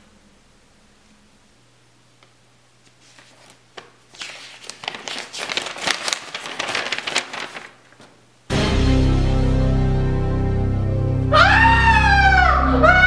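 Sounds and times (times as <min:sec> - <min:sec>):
paper snap: 0:02.2 - 0:08.2
paper crinkling and rustling: 0:02.8 - 0:08.2.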